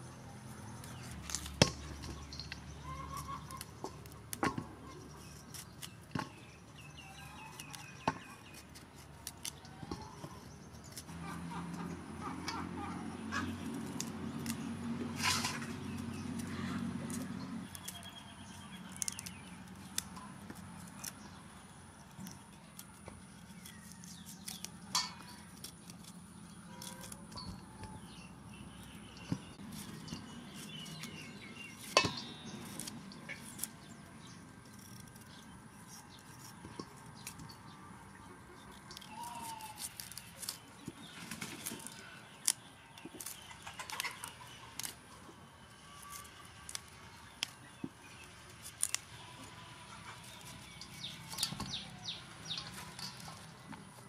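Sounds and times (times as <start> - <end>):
knife cutting cauliflower: 0.7 - 11.2, 22.3 - 28.1, 38.8 - 45.0.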